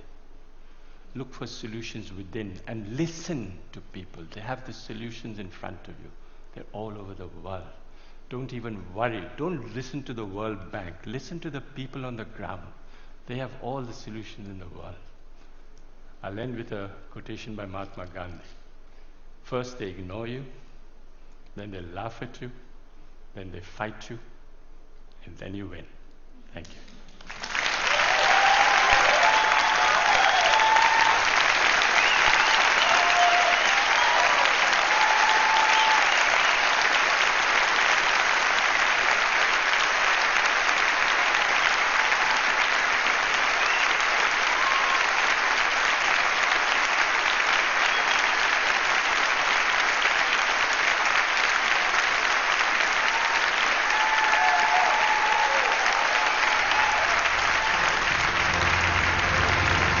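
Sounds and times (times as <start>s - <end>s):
large audience applauding: 27.0s - 60.0s
low-pitched music: 57.6s - 60.0s.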